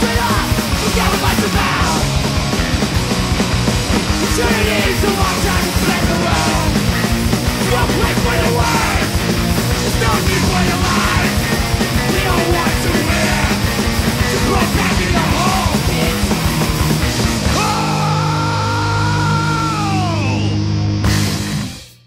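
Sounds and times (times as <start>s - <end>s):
fast drums: 0.0s - 20.2s, 21.0s - 22.0s
bass guitar: 0.0s - 22.0s
distorted electric guitars: 0.0s - 22.0s.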